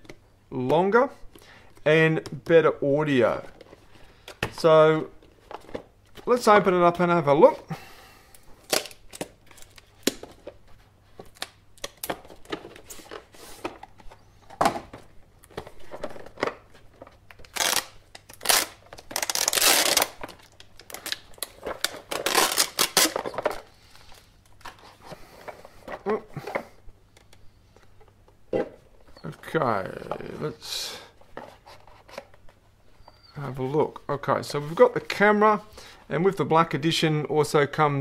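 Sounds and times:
plastic crinkling and scraping: 8.6s - 26.7s.

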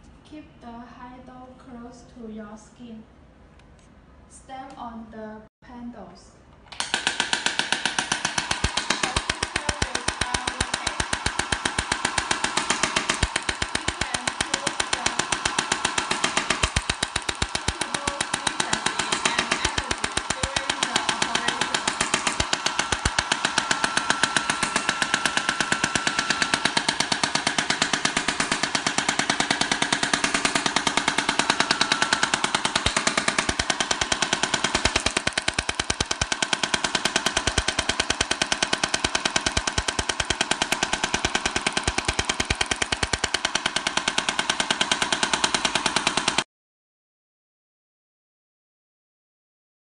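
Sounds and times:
rapid sharp clicks: 6.7s - 46.5s.

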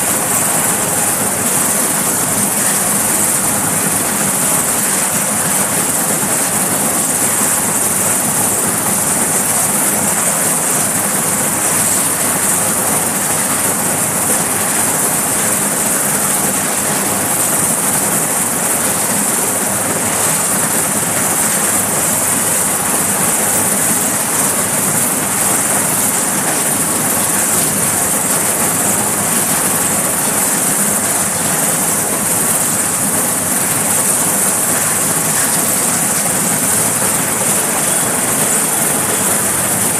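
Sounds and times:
helicopter engines and rotors: 0.0s - 39.9s.

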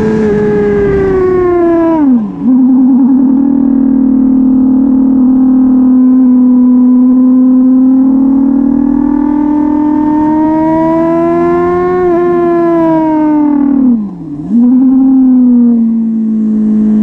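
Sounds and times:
motorcycle engine at high revs: 0.0s - 17.0s.

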